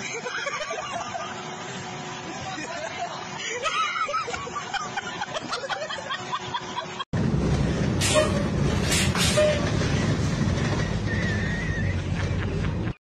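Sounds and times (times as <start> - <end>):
voices and laughter: 0.0 - 1.5, 2.3 - 7.1
vehicle interior rumble and rattle: 7.2 - 13.0.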